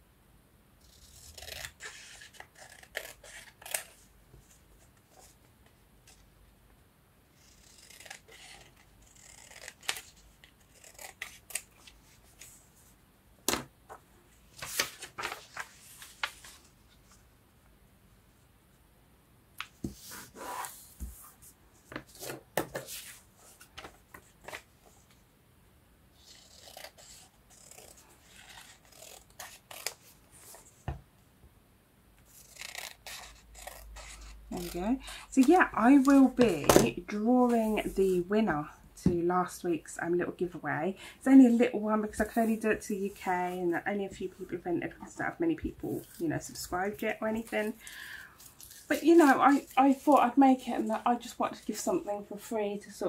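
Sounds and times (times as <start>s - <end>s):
paper rustling: 13.9s - 17.2s.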